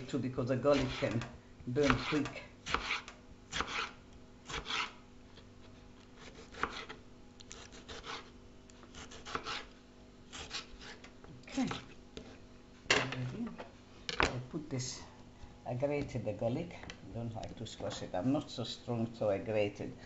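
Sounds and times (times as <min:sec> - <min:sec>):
knife chopping on cutting board: 0:00.7 - 0:04.9, 0:06.2 - 0:08.3, 0:08.9 - 0:09.7, 0:10.3 - 0:11.0.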